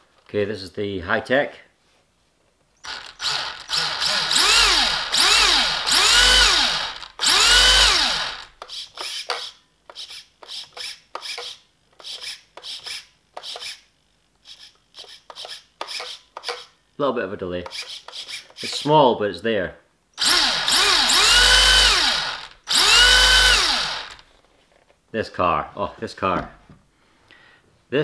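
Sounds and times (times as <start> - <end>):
steering servo buzzing: 2.8 - 8.6, 20.2 - 24.2
electric motor whine: 2.9 - 8.5, 20.2 - 24.2.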